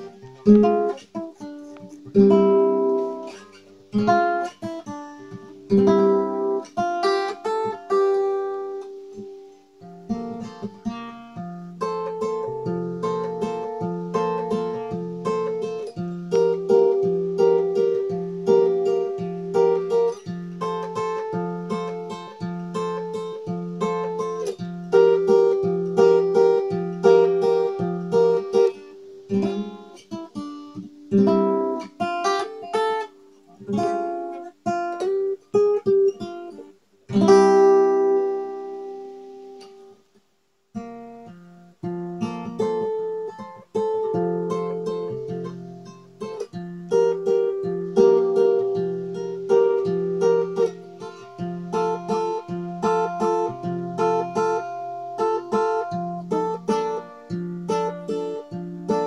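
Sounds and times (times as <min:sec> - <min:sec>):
solo guitar picking and chords: 0:00.0 - 0:40.0, 0:40.7 - 0:59.0.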